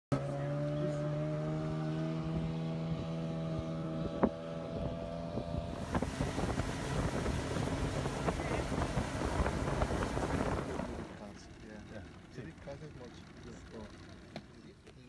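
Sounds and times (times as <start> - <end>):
outboard motor: 0.1 - 15.0
wind on microphone: 2.2 - 11.1
rushing water: 5.8 - 11.1.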